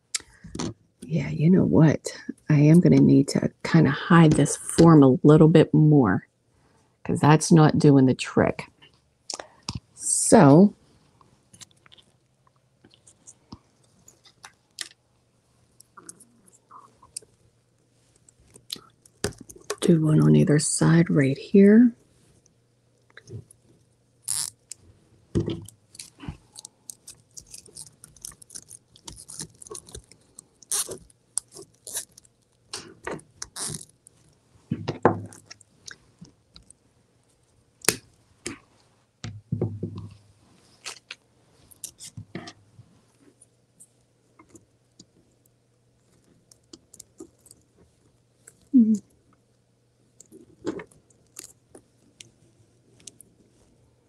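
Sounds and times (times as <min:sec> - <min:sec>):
burlap mesh crinkling: 0:25.9 - 0:32.4.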